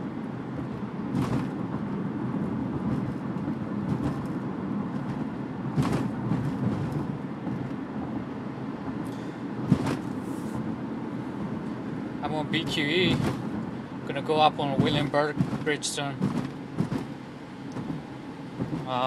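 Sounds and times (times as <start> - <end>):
road and tyre rumble in car: 0.0 - 19.0
loud thumps: 0.6 - 1.9, 5.0 - 7.6, 9.6 - 10.1, 13.1 - 13.6, 14.7 - 17.2.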